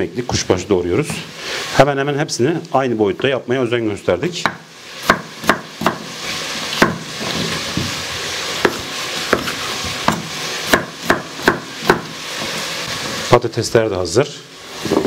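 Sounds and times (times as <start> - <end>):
steady hiss: 0.0 - 15.0
knife chopping on wooden board: 4.4 - 6.1, 6.8 - 7.1, 8.6 - 12.1.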